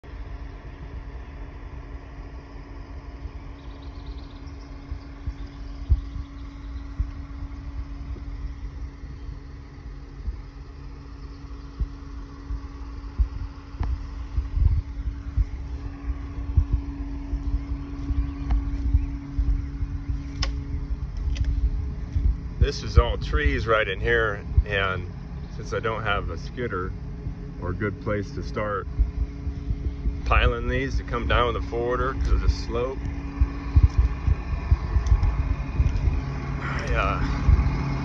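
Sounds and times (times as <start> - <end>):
diesel engine idling: 3.5 - 38.0
low thumps: 11.7 - 26.3, 28.4 - 38.0.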